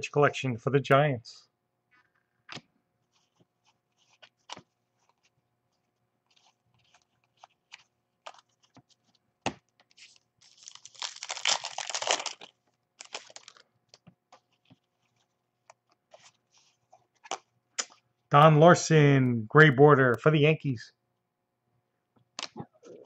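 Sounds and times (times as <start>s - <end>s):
foil pack crinkling and tearing: 10.0s - 14.0s.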